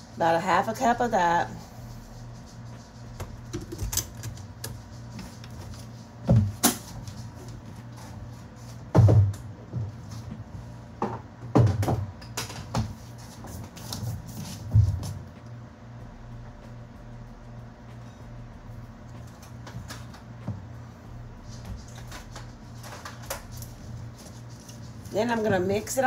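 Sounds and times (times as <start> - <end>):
low steady hum: 0.0 - 26.0
sharp knocks and thuds: 8.9 - 10.0.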